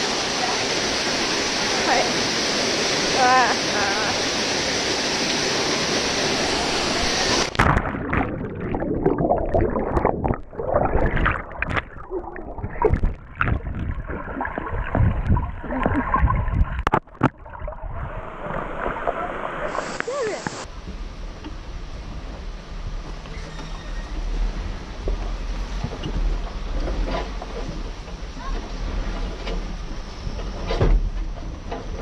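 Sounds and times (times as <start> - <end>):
waterfall pouring into pool: 0.0 - 15.0, 18.2 - 20.7
underwater churning and bubbling: 1.0 - 20.7
underwater knocks and thuds: 7.5 - 19.1.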